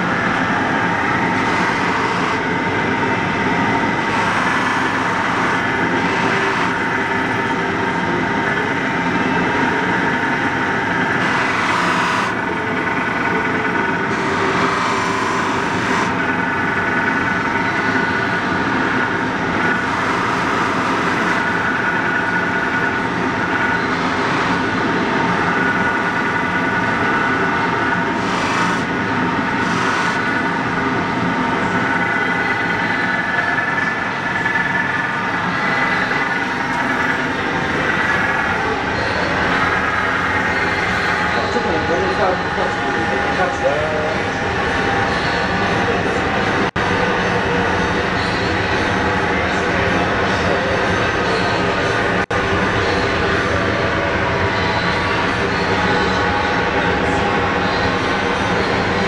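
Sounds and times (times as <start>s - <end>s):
polishing machine motor whining: 0.0s - 46.7s.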